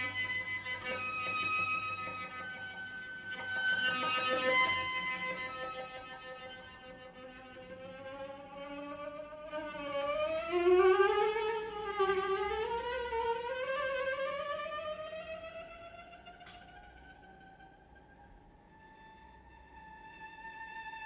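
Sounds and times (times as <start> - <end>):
solo cello playing slow notes: 0.0 - 21.0.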